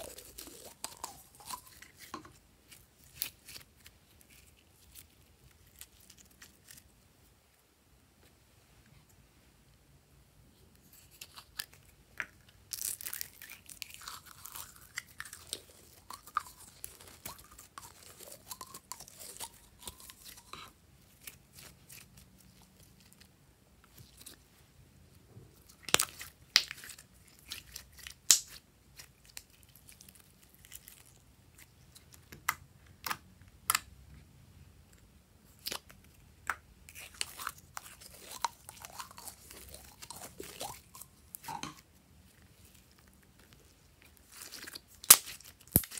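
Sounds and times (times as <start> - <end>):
slime squelching in plastic bottle: 36.7 - 45.9.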